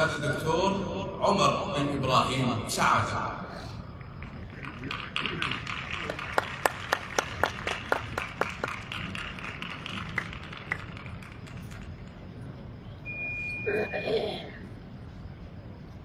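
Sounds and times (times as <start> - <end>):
stadium crowd noise: 0.0 - 16.0
hand claps: 4.2 - 11.9.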